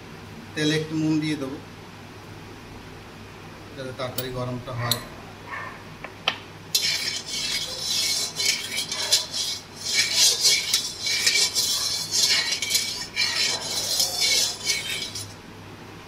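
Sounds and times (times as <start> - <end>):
spatula scraping metal pan: 6.7 - 15.4.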